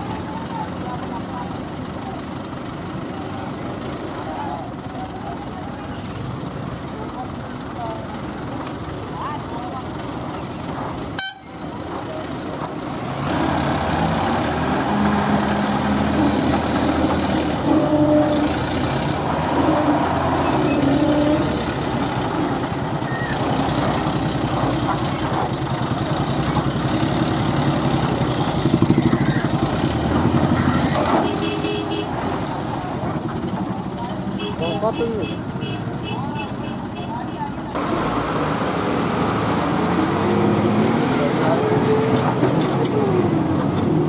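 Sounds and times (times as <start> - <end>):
voices in background: 0.0 - 11.0, 32.7 - 37.8
heavy diesel engines running: 0.0 - 44.0
vehicle horn: 11.2 - 11.6, 31.2 - 32.2, 34.4 - 37.2.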